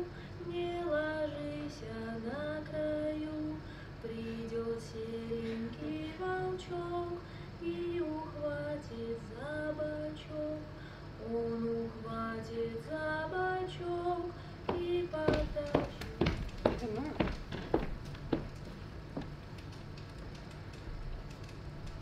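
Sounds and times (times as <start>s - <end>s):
woman singing slow melody: 0.0s - 17.1s.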